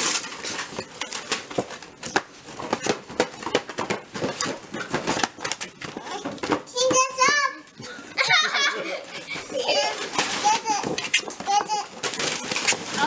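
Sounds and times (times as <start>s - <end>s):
wrapping paper crinkling: 0.0s - 6.3s, 9.2s - 13.0s.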